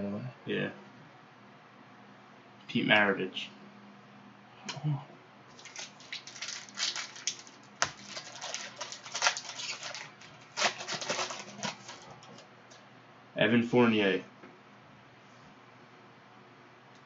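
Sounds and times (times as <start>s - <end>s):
foil wrapper crinkling: 5.5s - 12.4s.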